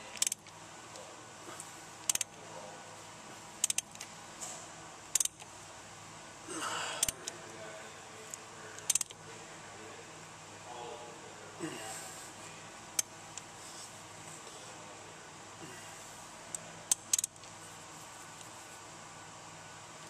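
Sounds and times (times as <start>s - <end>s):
ratchet clicking: 0.2s - 0.5s, 2.0s - 2.3s, 3.6s - 4.0s, 5.1s - 5.4s, 8.9s - 9.2s, 16.9s - 17.4s.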